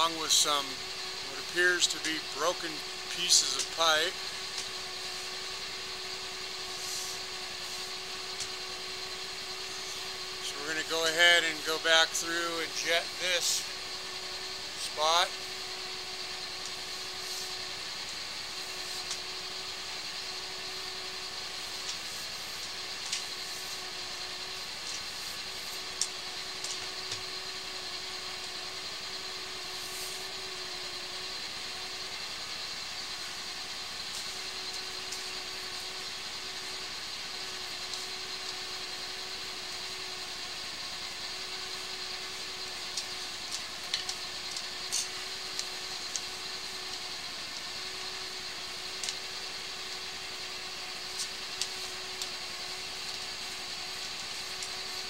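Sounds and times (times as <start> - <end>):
hydro-jetter machine humming: 0.0 - 55.0.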